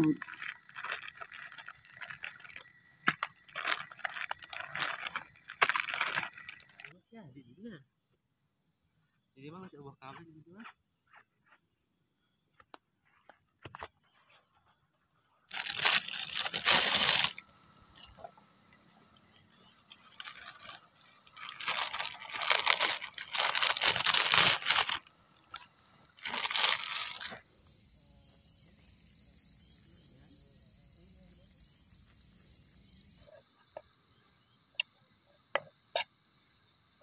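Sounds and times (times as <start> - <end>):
plastic packaging crinkling and tearing: 0.0 - 6.9, 15.5 - 18.3, 19.9 - 27.4
faint insect trill: 0.0 - 37.0.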